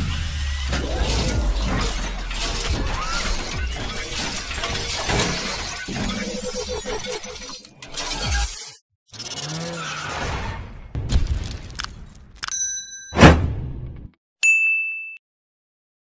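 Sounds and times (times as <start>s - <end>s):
sharp crashing hits: 13.2s - 13.8s.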